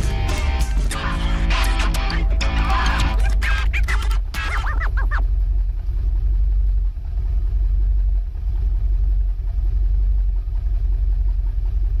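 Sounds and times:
car engine idling roughly: 0.0 - 12.0
person speaking: 2.0 - 4.8.

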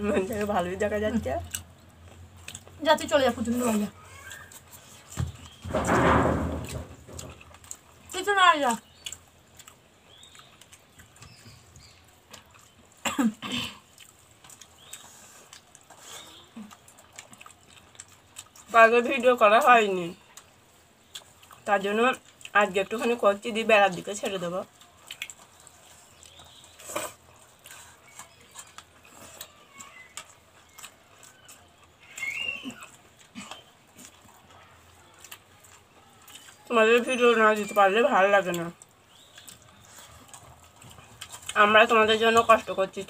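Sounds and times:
chewing and lip smacks: 1.4 - 5.6, 7.1 - 13.0, 13.7 - 23.2, 24.2 - 37.8, 38.4 - 42.7
person coughing: 13.0 - 13.8.

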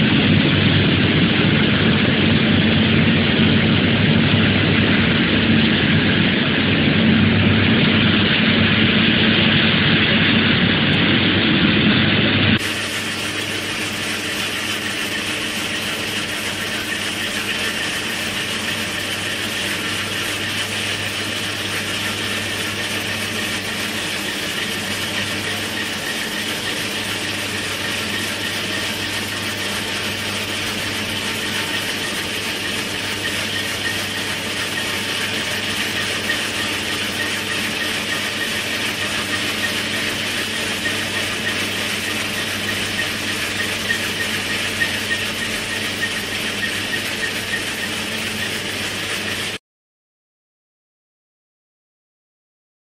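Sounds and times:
machine drone with hum: 0.0 - 49.6
rock saw cutting: 12.6 - 49.6.

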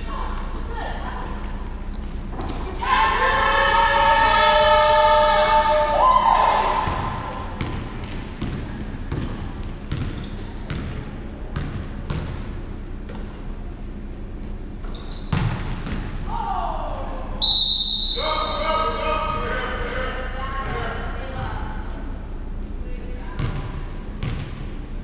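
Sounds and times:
short high squeaks: 2.4 - 2.8, 14.4 - 16.4
basketball bouncing on wooden floor: 7.6 - 12.5, 15.3 - 16.1.

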